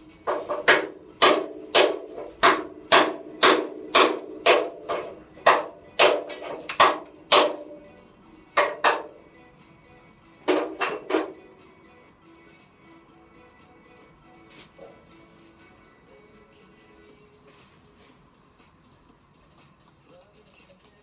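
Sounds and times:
hammer blows on metal rivet: 0.3 - 7.8.

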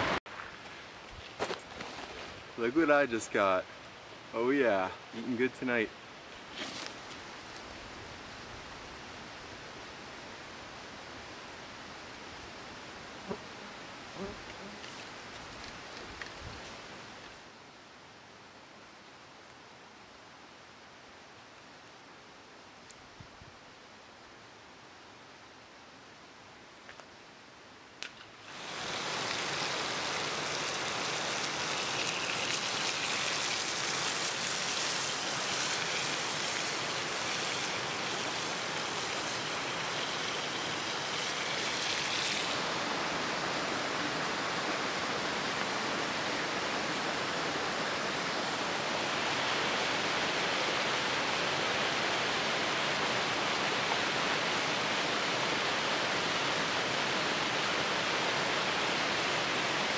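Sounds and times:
rush of running water: 0.0 - 0.8, 28.4 - 59.9
campfire crackling: 0.0 - 9.3, 13.2 - 17.4, 27.9 - 51.2
fish sizzling in a frying pan: 28.6 - 42.6.

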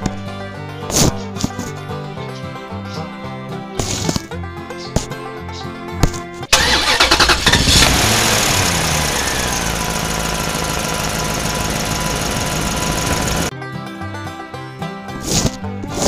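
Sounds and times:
truck engine starting: 6.5 - 13.5.

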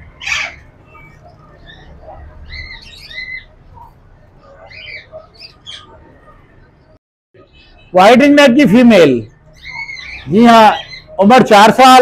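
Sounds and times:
parrots squawking and chirping: 0.0 - 6.4, 9.5 - 11.2.

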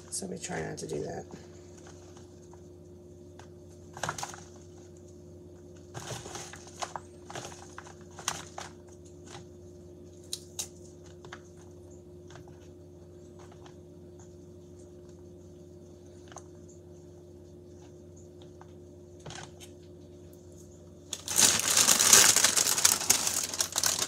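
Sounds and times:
steady low hum: 0.0 - 24.0
salad leaves rustling: 21.1 - 24.0.

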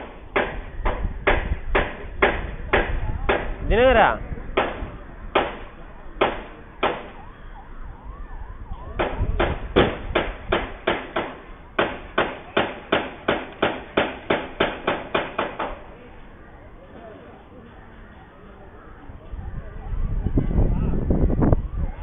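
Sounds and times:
hammering on metal scaffolding: 0.0 - 3.6, 4.5 - 7.2, 8.9 - 16.0.

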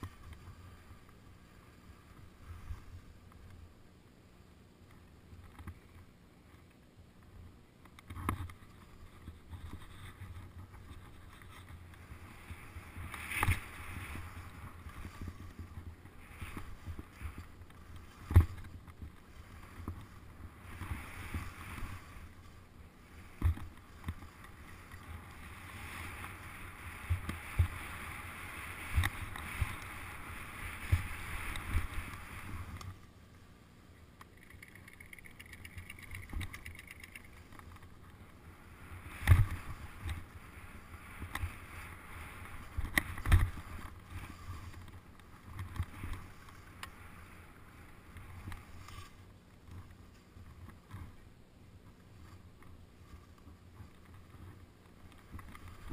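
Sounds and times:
wind rumble on microphone: 7.4 - 33.1, 34.3 - 55.9
skis hissing through snow: 12.0 - 18.6, 19.2 - 32.8, 38.4 - 44.8.

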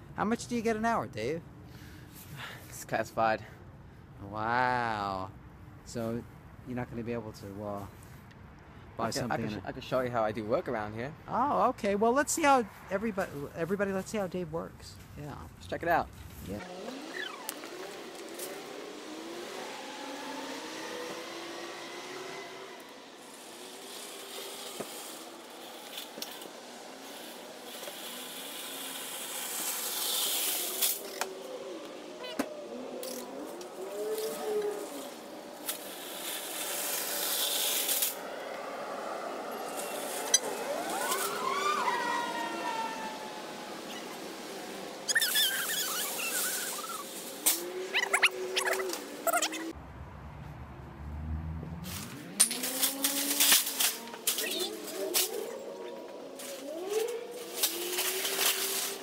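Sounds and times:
car engine accelerating: 16.6 - 23.1, 38.1 - 58.2
traffic hiss: 17.6 - 32.2, 33.6 - 49.2
shopping carts rattling on asphalt: 23.2 - 31.1, 33.8 - 41.7, 45.2 - 47.3, 56.7 - 59.0.

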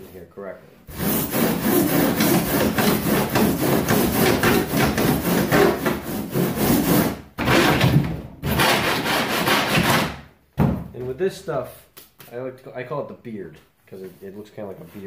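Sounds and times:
rasp scraping foam: 0.9 - 7.8.

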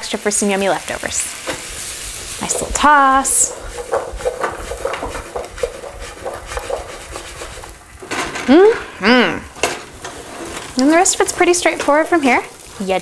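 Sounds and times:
food sizzling in pan: 0.0 - 13.0
spatula scraping pan: 1.3 - 8.5, 9.5 - 13.0
person making vocal sounds: 8.5 - 9.6.

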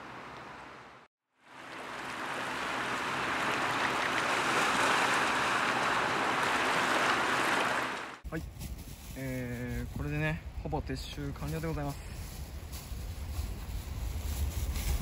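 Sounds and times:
waves washing over rocks: 1.6 - 8.2.

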